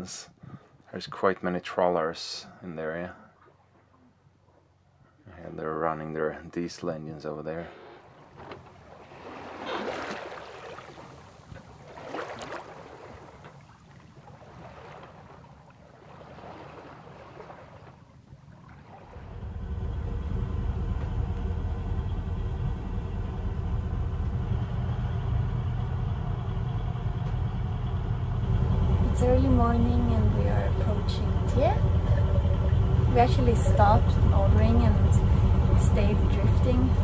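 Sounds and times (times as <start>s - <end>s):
boat diesel engine droning: 18.8s - 37.0s.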